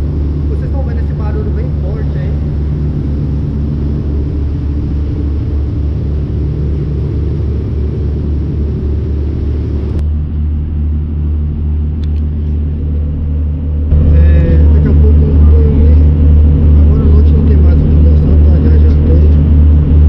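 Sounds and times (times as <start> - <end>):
boat diesel engine rumbling: 0.0 - 20.0
sharp click: 12.0 - 12.3.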